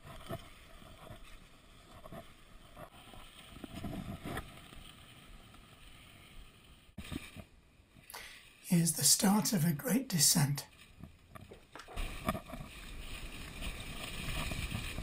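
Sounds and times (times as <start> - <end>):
skis sliding on snow: 0.0 - 15.0.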